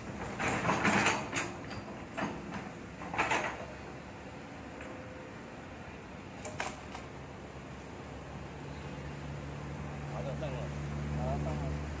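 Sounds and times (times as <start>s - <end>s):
excavator bucket clanking: 0.0s - 3.9s
excavator engine running: 0.0s - 12.0s.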